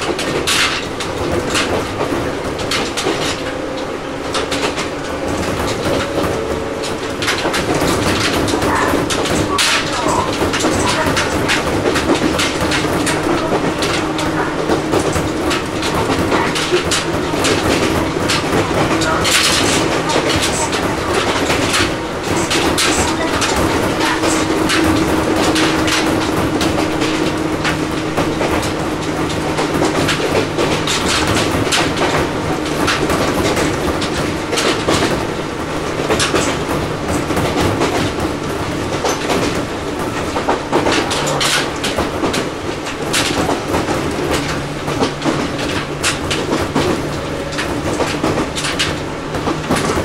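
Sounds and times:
train running rumble: 0:00.0 - 0:50.0
wheels clacking over rail joints: 0:00.0 - 0:50.0.

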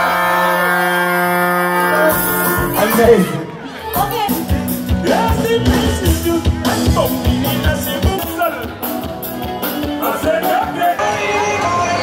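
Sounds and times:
electric guitar: 0:00.0 - 0:12.0
horns: 0:00.0 - 0:12.0.

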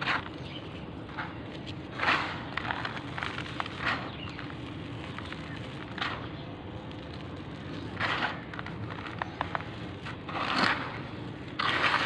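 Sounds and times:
hands raking crushed charcoal: 0:00.0 - 0:12.0
steady low hum: 0:00.0 - 0:12.0
charcoal pieces clicking together: 0:01.2 - 0:09.8.

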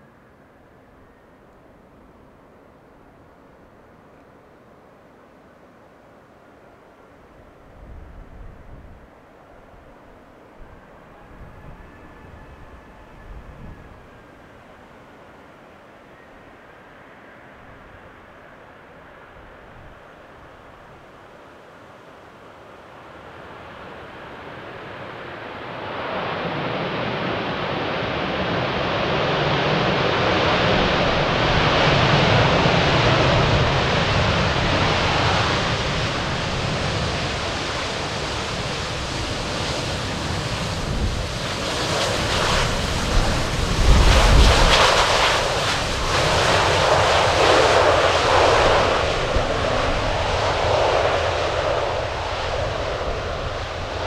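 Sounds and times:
jet airliner engines passing: 0:07.7 - 0:54.0.

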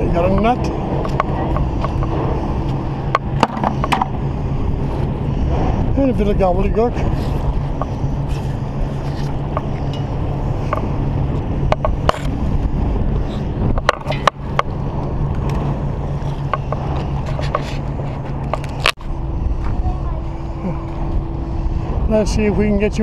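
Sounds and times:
low engine drone: 0:00.0 - 0:23.0
sharp clicks and knocks: 0:00.3 - 0:04.2, 0:11.6 - 0:12.4, 0:13.6 - 0:15.7.

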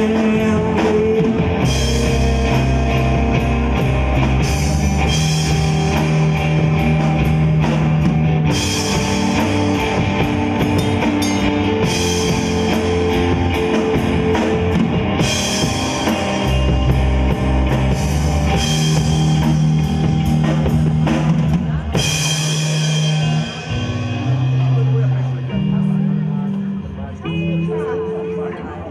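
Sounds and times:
rock band playing live: 0:00.0 - 0:28.9
cymbals crashing: 0:10.8 - 0:11.7.

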